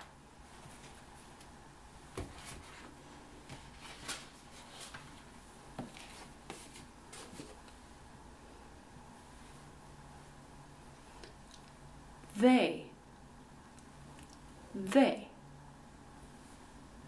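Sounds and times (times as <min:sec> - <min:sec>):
paper rustling and knocks: 0:02.1 - 0:07.7.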